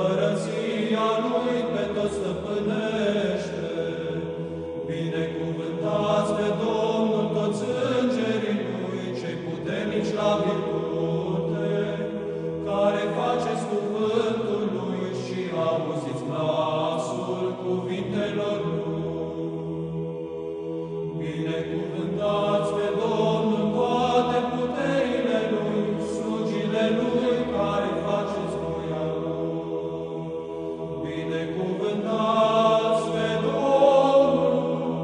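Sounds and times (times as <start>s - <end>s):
voices singing a chant: 0.0s - 35.0s.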